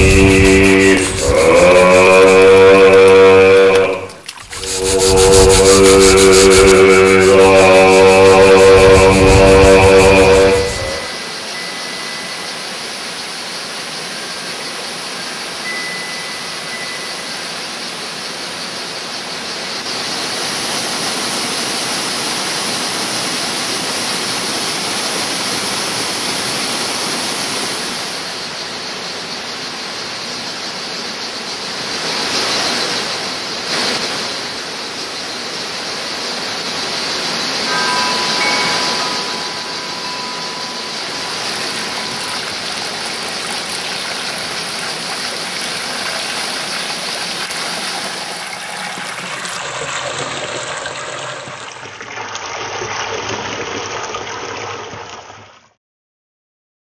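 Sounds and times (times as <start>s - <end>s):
flowing water rushing: 0.0s - 18.2s, 31.8s - 55.2s
faint high tones: 3.9s - 12.7s, 37.6s - 45.0s.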